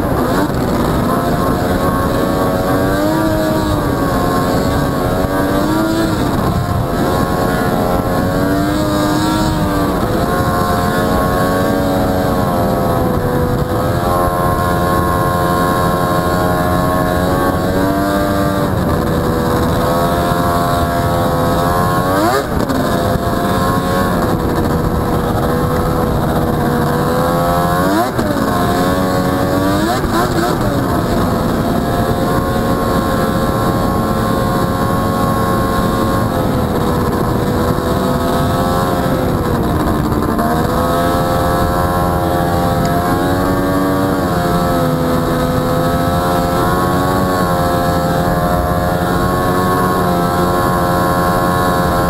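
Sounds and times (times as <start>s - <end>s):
two-stroke engine running: 0.0s - 52.0s.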